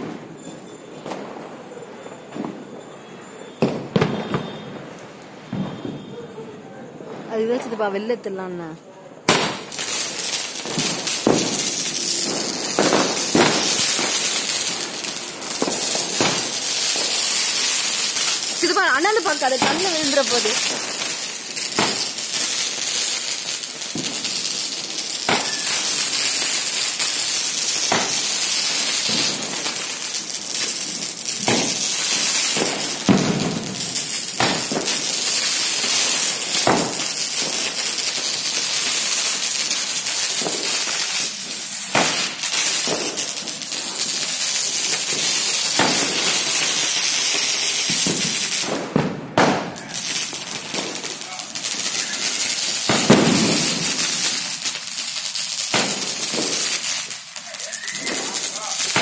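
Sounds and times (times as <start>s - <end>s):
firework pops: 3.6s - 4.8s, 5.5s - 6.2s, 9.2s - 17.5s, 18.2s - 22.2s, 23.8s - 24.4s, 25.2s - 27.2s, 27.8s - 29.8s, 31.3s - 35.2s, 36.6s - 37.8s, 41.9s - 54.8s, 55.7s - 59.0s
firework fizzing hiss: 9.2s - 59.0s.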